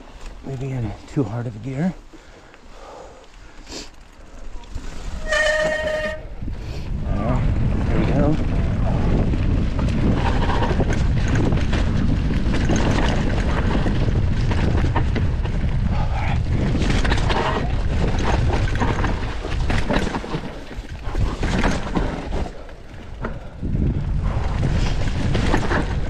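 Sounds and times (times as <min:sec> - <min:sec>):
wind rumbling on microphone: 0:04.2 - 0:26.0
bike rattling and knocking: 0:07.2 - 0:26.0.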